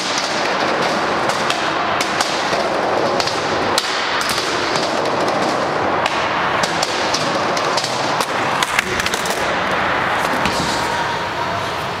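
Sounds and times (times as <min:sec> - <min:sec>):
skateboard clacking on ramp: 0:00.0 - 0:11.2
skateboard wheels rolling: 0:00.0 - 0:12.0.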